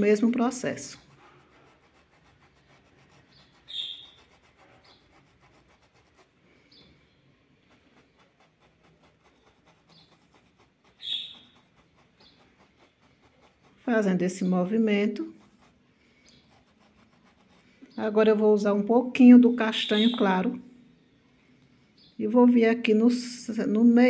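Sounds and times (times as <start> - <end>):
paintbrush rubbing on fabric: 0.0 - 18.4
small bird chirping: 2.6 - 5.8, 6.6 - 15.2, 16.2 - 18.3, 19.3 - 22.3.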